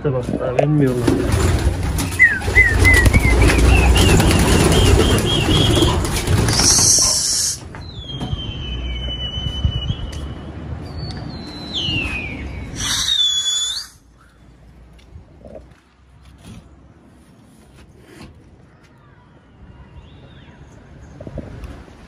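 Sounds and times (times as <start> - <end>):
pigeon wings flapping: 0.9 - 7.5
short rising chirps: 11.4 - 14.0.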